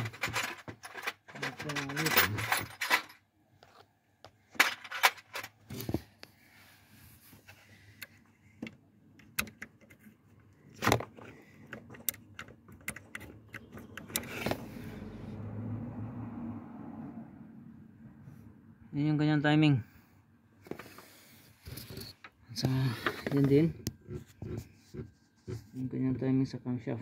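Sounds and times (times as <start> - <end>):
metal tools clinking on engine: 0.0 - 3.2.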